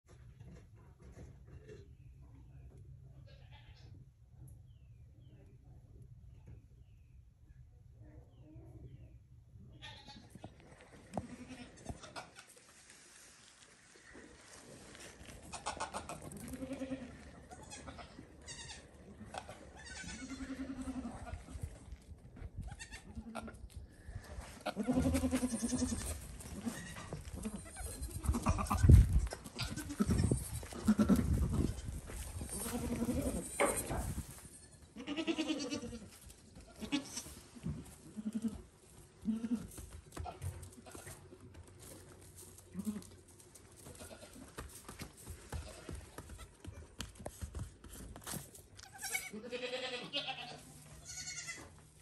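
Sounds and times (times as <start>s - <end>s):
goats bleating: 11.0s - 12.6s, 14.4s - 21.6s, 24.6s - 33.9s, 35.0s - 37.4s, 38.0s - 41.2s, 42.7s - 43.2s, 43.9s - 44.5s, 48.8s - 51.8s.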